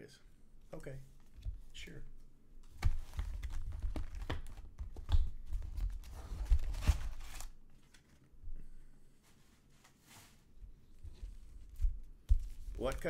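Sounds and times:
rustling cardboard and wrappers: 5.4 - 8.2.

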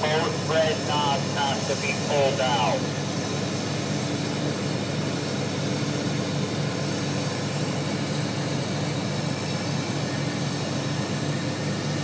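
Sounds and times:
diesel truck engine idling: 0.0 - 3.4.

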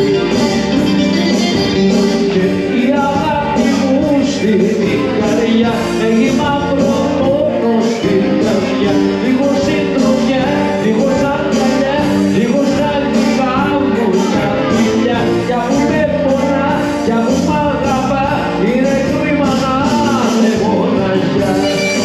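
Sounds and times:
live band music with bouzouki: 0.0 - 22.0.

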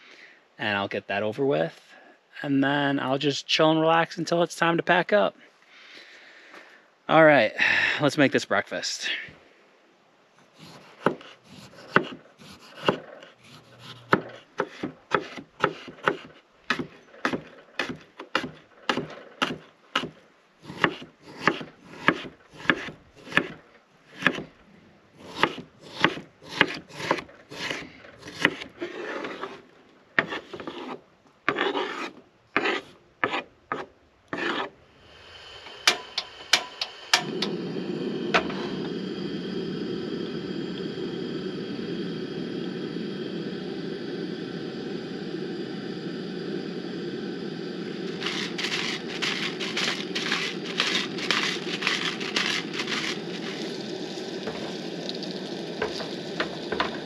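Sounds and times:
stove burner hissing: 10.5 - 19.5, 20.6 - 24.4, 25.2 - 29.6, 34.3 - 57.0
knife chopping on wooden board: 10.8 - 11.3, 11.9 - 13.0, 13.8 - 23.5, 24.2 - 24.5, 25.4 - 28.7.

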